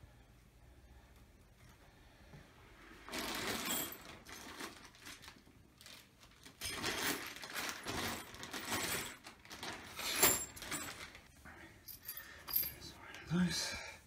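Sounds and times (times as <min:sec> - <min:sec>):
plastic bags crinkling: 0:03.0 - 0:11.3.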